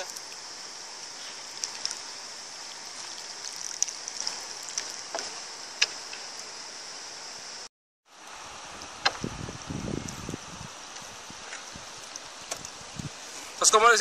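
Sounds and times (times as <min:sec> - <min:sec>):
light water splashes: 0:00.0 - 0:06.6, 0:10.9 - 0:13.6
water trickling and lapping: 0:00.0 - 0:06.7, 0:08.2 - 0:13.6.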